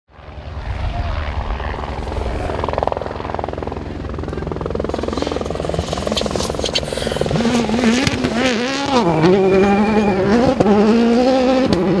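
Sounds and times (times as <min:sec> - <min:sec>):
rally car engine revving: 0:04.9 - 0:12.0.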